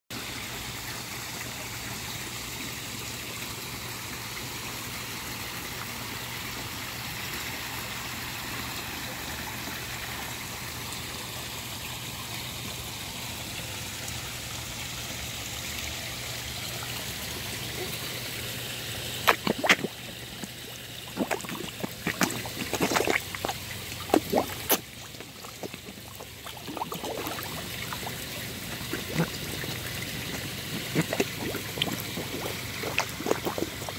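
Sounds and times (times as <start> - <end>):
water trickling into pond: 0.1 - 33.9
fish splashing and slurping: 8.5 - 33.9.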